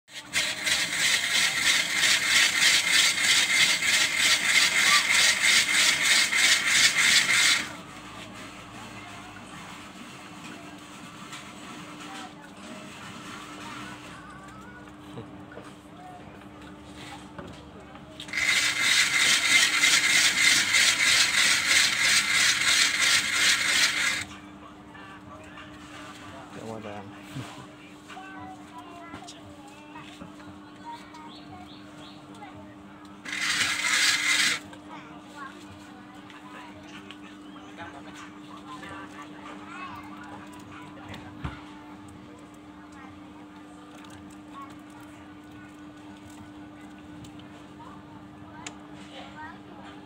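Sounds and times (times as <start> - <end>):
ice shaving machine rasping: 0.1 - 7.8, 18.2 - 24.3, 33.2 - 34.8.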